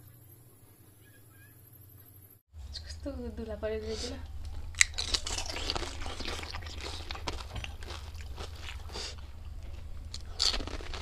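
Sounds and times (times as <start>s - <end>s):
crunching and chewing crisp food: 4.2s - 11.0s.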